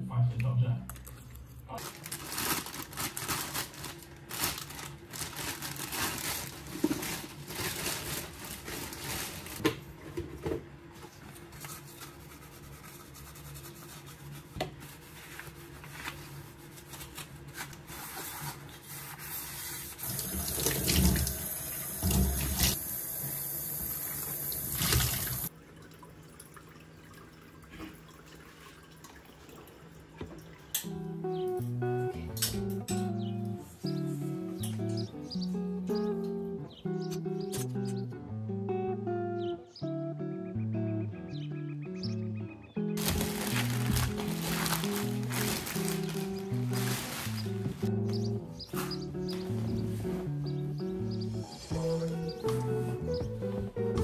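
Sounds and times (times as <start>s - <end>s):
water trickling: 20.0s - 22.8s, 23.6s - 30.8s
water splashing in sink: 20.0s - 22.9s, 23.8s - 30.7s
tap running: 20.0s - 25.5s
fountain pump humming: 20.0s - 27.6s
plastic parts clattering: 43.0s - 47.4s.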